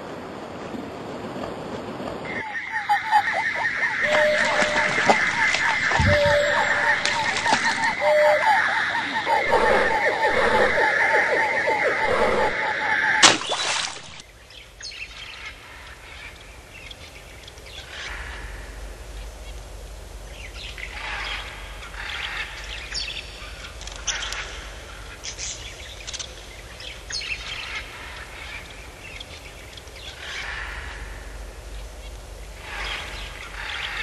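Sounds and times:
steady low rumble: 0.0s - 34.0s
bird-like animal calls: 2.3s - 14.2s.

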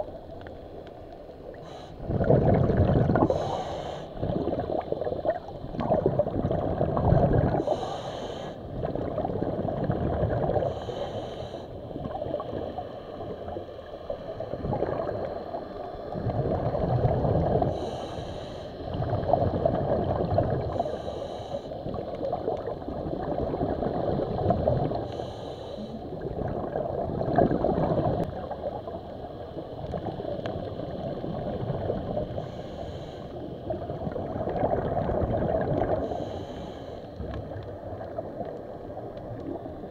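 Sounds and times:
gurgling bubbles: 1.4s - 11.2s, 11.8s - 18.2s, 18.8s - 21.2s, 21.8s - 32.7s, 33.6s - 39.9s
breathing through water: 1.6s - 4.8s, 5.8s - 9.1s, 10.2s - 13.1s, 17.3s - 19.5s, 20.5s - 22.0s, 24.9s - 26.8s, 32.2s - 33.7s, 34.8s - 37.6s.

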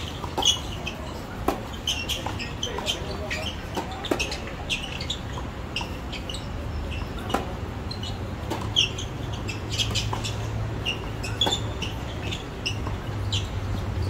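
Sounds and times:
racket striking tennis ball: 0.0s - 4.4s, 7.0s - 7.6s, 8.4s - 13.2s.

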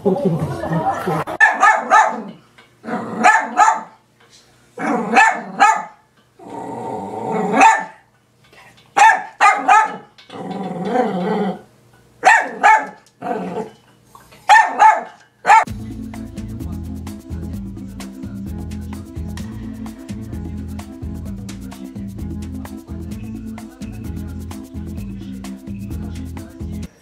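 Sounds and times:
small dog yapping: 1.4s - 2.4s, 3.2s - 3.9s, 4.8s - 6.0s, 7.4s - 8.0s, 9.0s - 10.1s, 12.2s - 13.8s, 14.5s - 15.7s
dog growling: 2.1s - 3.3s, 4.8s - 5.6s, 6.4s - 7.6s, 9.9s - 11.7s, 13.2s - 13.8s.

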